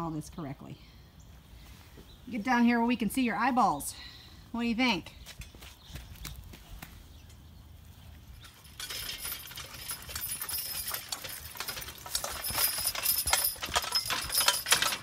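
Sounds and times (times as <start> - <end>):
metal harness rattling and clinking: 8.2 - 15.0
horse hoof clops: 8.8 - 15.0.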